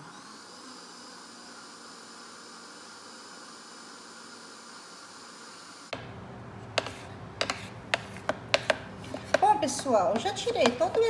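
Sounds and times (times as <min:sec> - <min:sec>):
blender motor running: 0:00.0 - 0:06.0
spatula scraping plastic jar: 0:06.7 - 0:11.0
spatula knocking on jar: 0:06.8 - 0:11.0.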